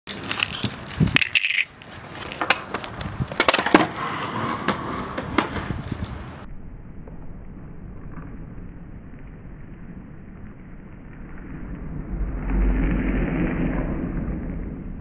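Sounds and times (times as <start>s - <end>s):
skateboard clacking on concrete: 0.1s - 6.3s
skateboard wheels rumbling on concrete: 0.1s - 6.5s.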